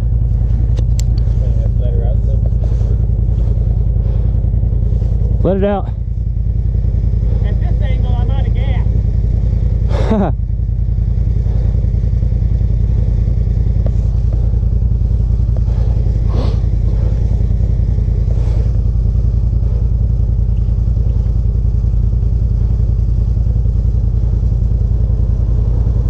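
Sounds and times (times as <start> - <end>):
utility vehicle engine idling: 0.0 - 26.0.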